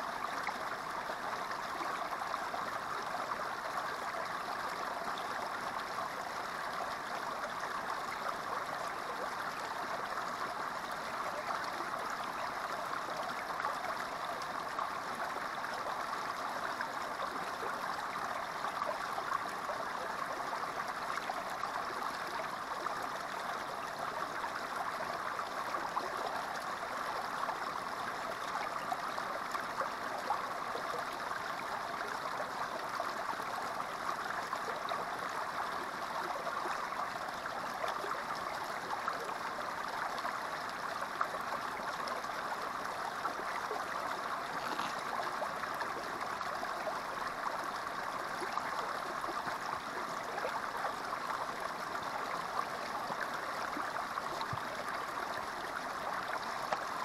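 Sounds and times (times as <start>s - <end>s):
creek water running: 0.0s - 57.0s.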